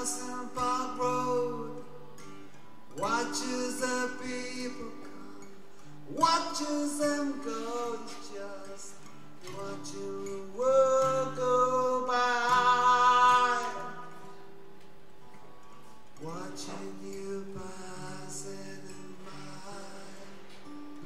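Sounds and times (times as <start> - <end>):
man singing: 0.0 - 2.1, 3.0 - 14.3, 16.2 - 21.0
guitar chords ringing: 0.0 - 21.0.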